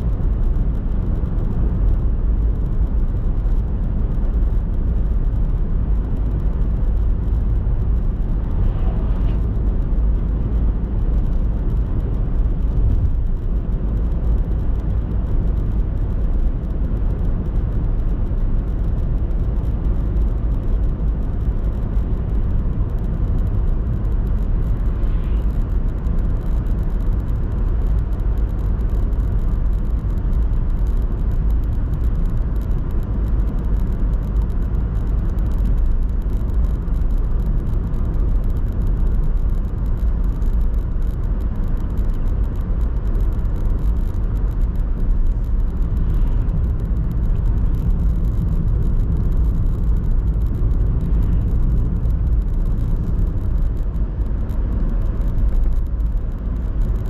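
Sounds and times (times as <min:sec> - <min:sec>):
car driving on paved road: 0:00.0 - 0:57.0.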